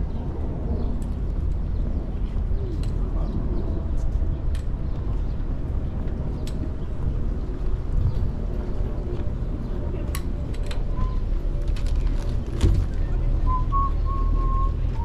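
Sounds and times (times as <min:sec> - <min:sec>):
low rumble of traffic: 0:00.0 - 0:15.0.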